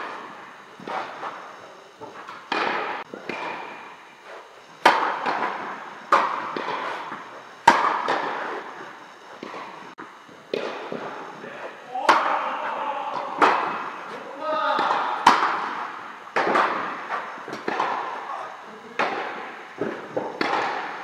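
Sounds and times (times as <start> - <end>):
tennis racket hitting ball: 2.0 - 8.8, 10.5 - 11.1, 12.0 - 18.3, 19.0 - 21.0
tennis ball bouncing: 2.0 - 11.1, 13.1 - 18.2, 19.0 - 21.0.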